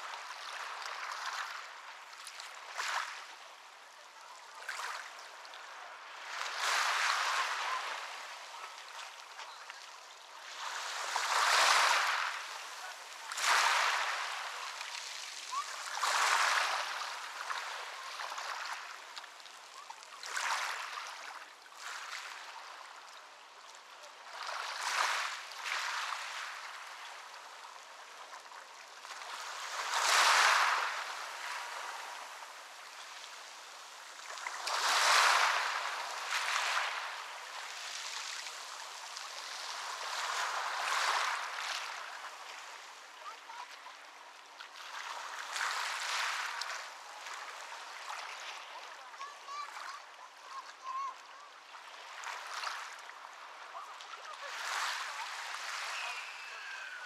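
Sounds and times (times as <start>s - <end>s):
ocean waves breaking: 5.7s - 22.9s, 29.0s - 44.0s, 44.7s - 51.3s, 51.9s - 57.0s.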